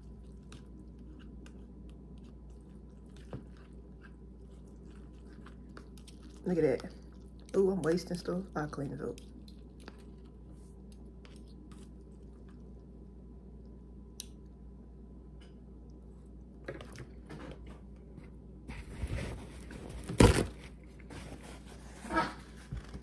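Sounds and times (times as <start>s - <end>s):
soft chewing: 0.0s - 14.7s.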